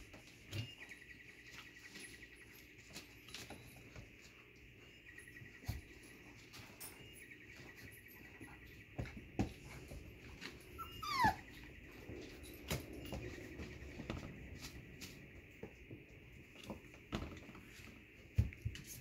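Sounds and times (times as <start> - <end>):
paws scuffling and knocking: 0.0 - 19.0
puppy yelp: 10.8 - 11.6.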